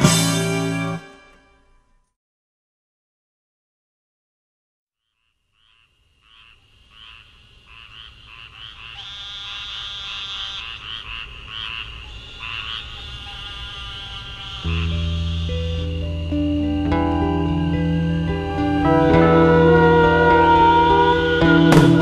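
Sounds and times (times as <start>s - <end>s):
chorus of frogs calling: 5.0s - 22.0s.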